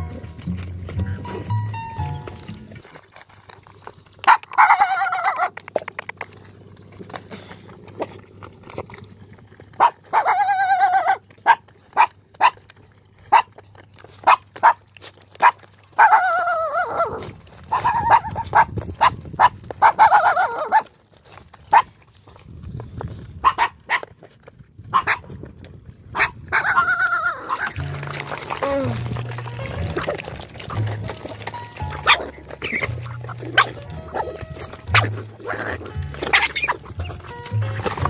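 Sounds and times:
music: 0.0s - 2.8s, 27.8s - 38.0s
puppies chewing and lapping: 0.0s - 38.0s
dog yelps: 4.3s - 5.6s, 9.8s - 12.6s, 15.4s - 20.9s, 23.4s - 24.0s, 24.9s - 25.2s, 26.2s - 27.8s, 30.0s - 38.0s.

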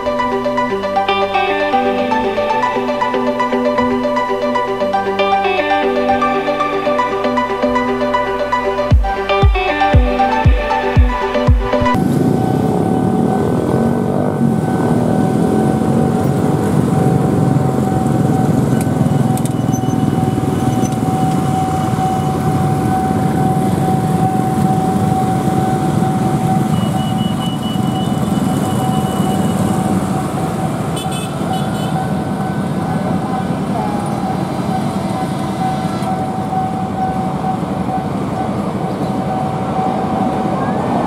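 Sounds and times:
motorcycle and scooter traffic: 0.0s - 11.0s, 11.8s - 41.0s
electronic music: 0.0s - 19.4s
steady high tone: 0.0s - 41.0s.

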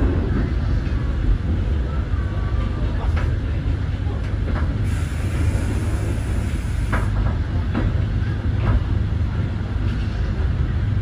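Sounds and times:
train rumbling: 0.0s - 11.0s.

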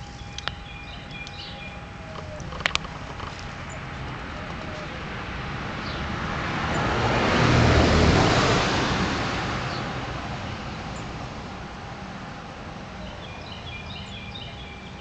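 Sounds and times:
car passing by: 3.5s - 15.0s.

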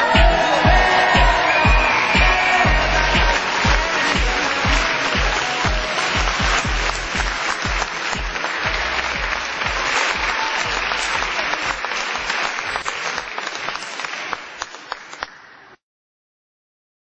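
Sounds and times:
music playing: 0.0s - 12.8s
crowd applauding: 0.0s - 15.6s.

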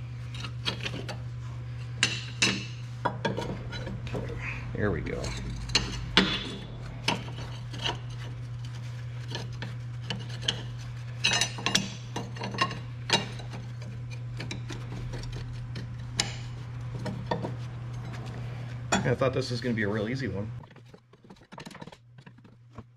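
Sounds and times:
steady low hum: 0.0s - 22.9s
metal parts clinking and scraping: 2.0s - 19.2s, 20.7s - 22.9s.

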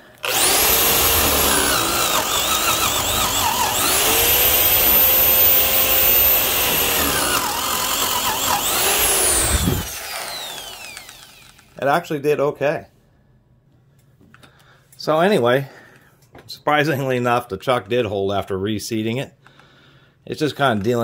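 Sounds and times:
drill boring into wood: 0.0s - 11.8s.

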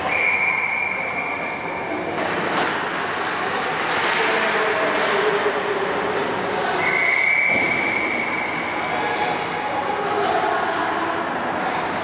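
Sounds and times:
high steady whistle: 0.0s - 1.6s, 6.8s - 8.6s.

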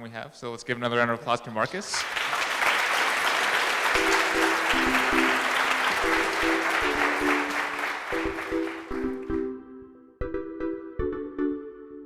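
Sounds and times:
audience applauding: 1.9s - 9.4s
music of short repeated chords: 4.0s - 12.0s.

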